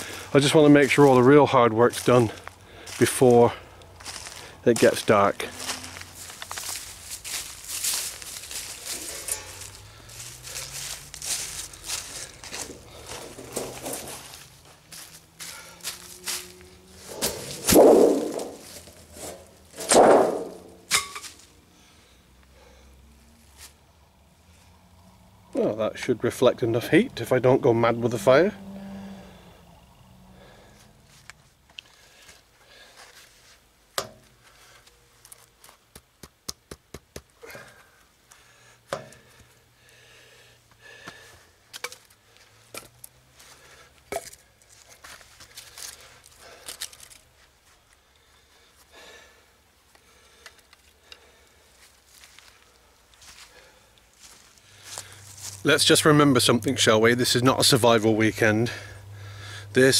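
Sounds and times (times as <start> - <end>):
dry sticks clattering: 5.6 - 21.5
metal sheets thudding on leaves: 5.9 - 9.8, 10.4 - 21.5.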